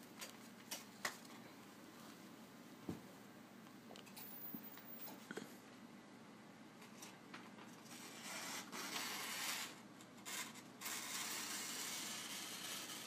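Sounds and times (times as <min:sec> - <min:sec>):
scissors cutting paper: 0:07.8 - 0:13.0.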